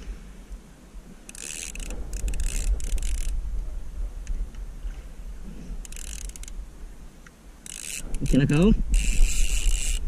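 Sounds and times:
wind rumble on microphone: 0.0 - 7.2, 8.0 - 10.0
fishing reel clicking and whirring: 1.3 - 3.4, 5.8 - 6.6, 7.6 - 10.0.

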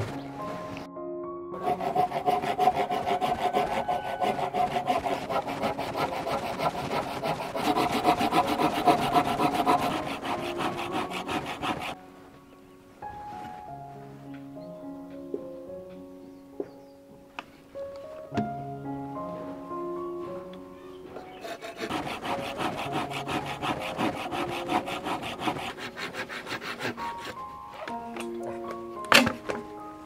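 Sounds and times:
background music: 0.0 - 30.0
handsaw cutting bamboo: 1.6 - 12.0, 21.4 - 27.4.

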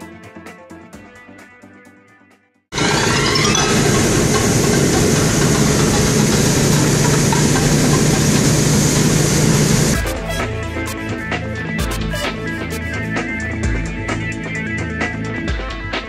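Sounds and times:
music: 0.0 - 9.2, 10.0 - 16.0
heavy engine running: 2.8 - 10.0.

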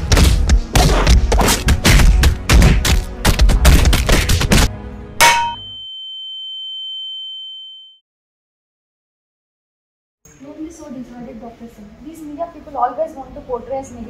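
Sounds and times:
hard hit: 5.2 - 5.6
high ringing tone: 5.2 - 8.0.

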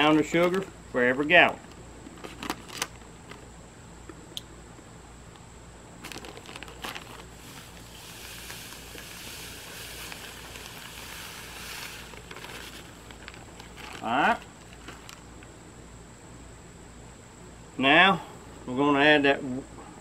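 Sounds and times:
bag crinkling: 2.2 - 3.4, 6.0 - 15.3
sugar pouring with a hiss: 7.2 - 13.6.

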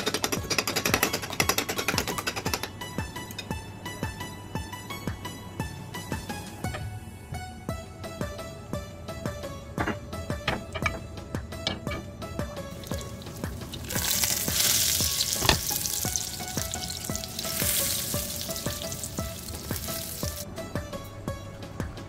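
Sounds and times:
plucked-string background music: 0.0 - 22.0
eggplant sizzling in hot oil: 12.7 - 20.4.

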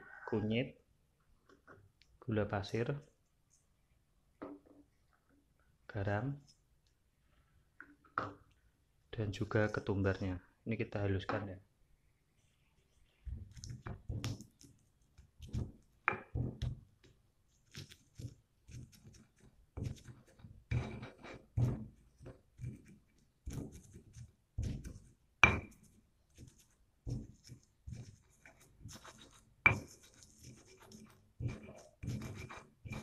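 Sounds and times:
stone pestle grinding spices: 17.7 - 33.0.

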